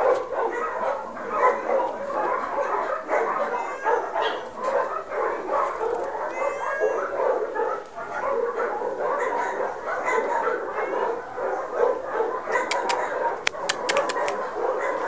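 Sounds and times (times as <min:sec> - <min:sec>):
dogs barking and yipping: 0:00.0 - 0:15.0
dog whining: 0:06.0 - 0:07.2.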